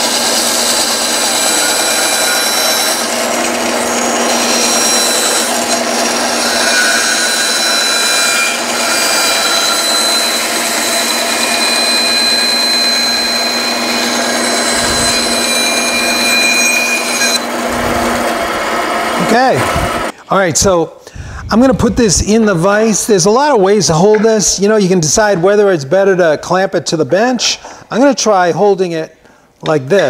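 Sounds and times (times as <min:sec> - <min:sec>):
bandsaw motor hum and blade whine: 0:00.0 - 0:20.1
saw blade rasping through wood: 0:00.0 - 0:20.1.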